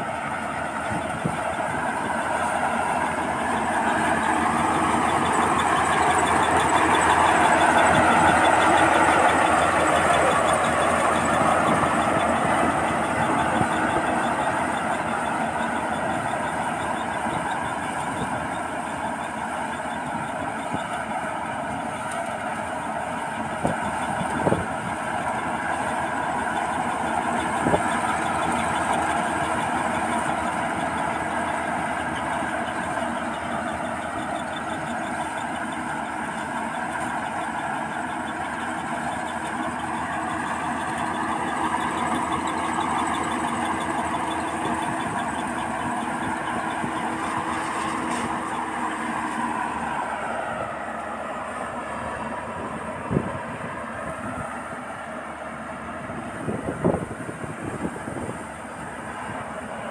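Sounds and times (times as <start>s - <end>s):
combine harvester running: 0.0s - 59.9s.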